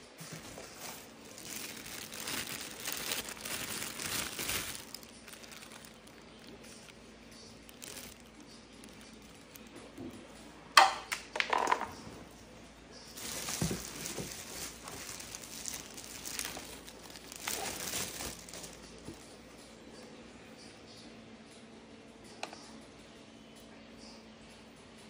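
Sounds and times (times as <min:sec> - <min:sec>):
plastic bags crinkling: 0:00.1 - 0:10.1, 0:13.1 - 0:19.4.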